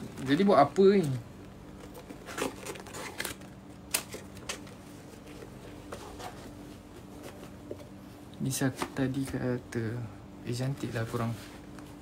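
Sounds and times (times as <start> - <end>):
faint steady hum: 0.0 - 12.0
paper crinkling and rustling: 1.7 - 7.6.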